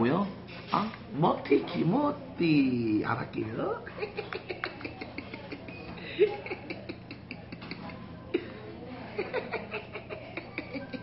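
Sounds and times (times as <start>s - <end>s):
low laughter: 3.9s - 11.0s.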